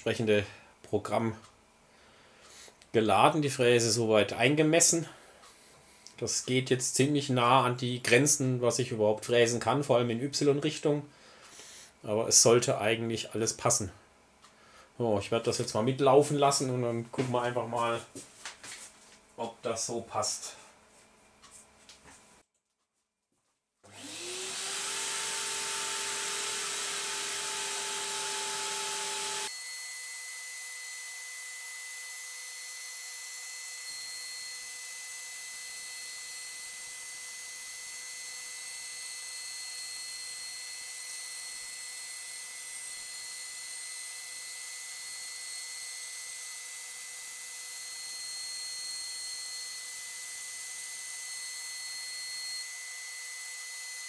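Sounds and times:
high whistle of machine milling: 23.9s - 54.0s
router spindle whine: 23.9s - 54.0s.

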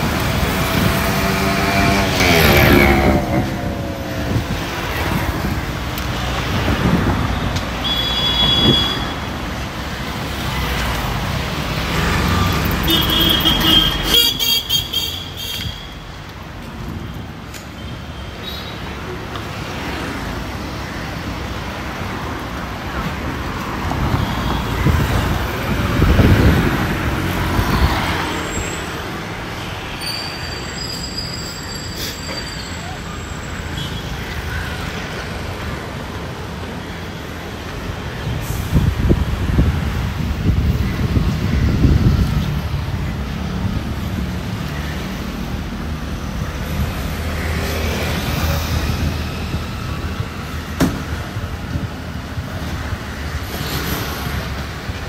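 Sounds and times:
passing vehicles: 0.0s - 55.0s
car horns tooting: 7.8s - 9.3s, 12.8s - 15.9s.

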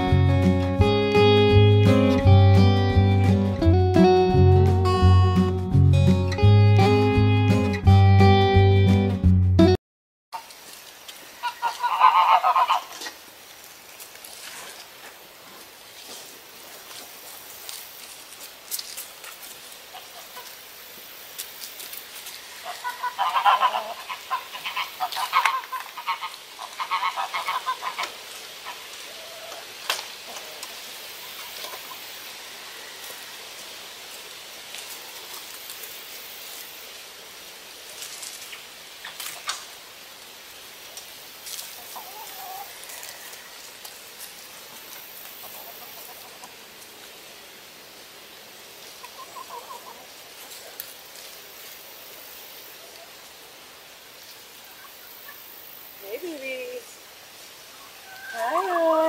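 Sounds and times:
chickens squawking: 11.4s - 13.2s, 19.9s - 20.6s, 22.4s - 29.7s, 41.7s - 43.7s, 45.3s - 46.6s, 48.8s - 50.8s, 57.7s - 59.0s.

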